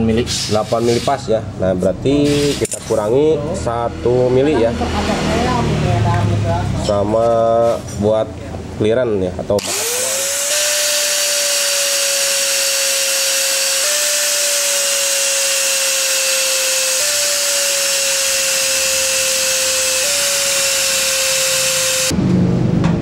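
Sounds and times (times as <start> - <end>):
angle grinder grinding metal: 9.6 - 22.1.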